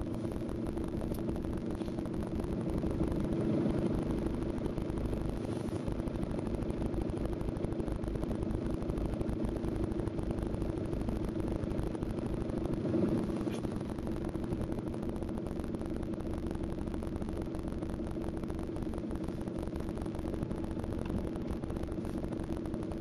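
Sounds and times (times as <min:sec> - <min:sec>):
engine running at low revs: 0:00.0 - 0:23.0.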